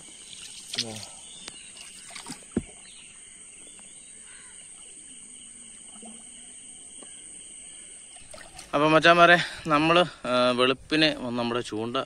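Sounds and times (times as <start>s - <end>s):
night insects chirring: 0.0s - 12.0s.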